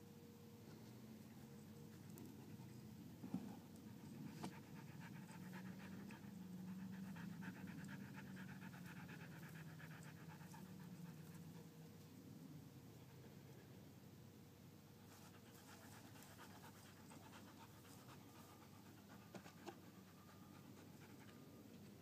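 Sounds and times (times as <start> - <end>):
dog panting: 3.8 - 11.7, 15.1 - 21.5.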